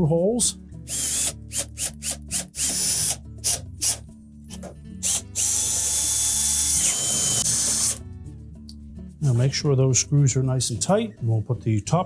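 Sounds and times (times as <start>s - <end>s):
cordless drill driving screws: 0.9s - 4.0s, 5.0s - 8.0s.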